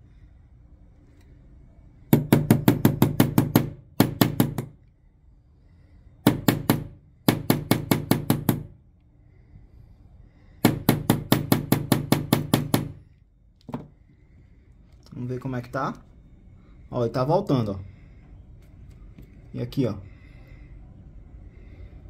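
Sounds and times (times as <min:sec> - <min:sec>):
hammer tapping steel punch: 0:02.1 - 0:04.8, 0:06.2 - 0:08.7, 0:10.6 - 0:13.0.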